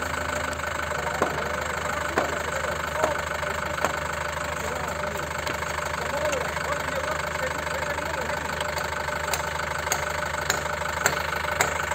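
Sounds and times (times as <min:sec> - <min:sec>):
vehicle engine idling: 0:00.0 - 0:11.9.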